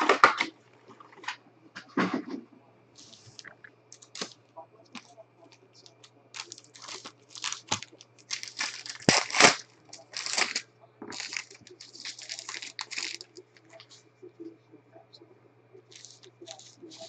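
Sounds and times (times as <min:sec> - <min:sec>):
foil wrappers crinkling and tearing: 0:03.0 - 0:04.4, 0:05.9 - 0:14.0, 0:15.9 - 0:17.0.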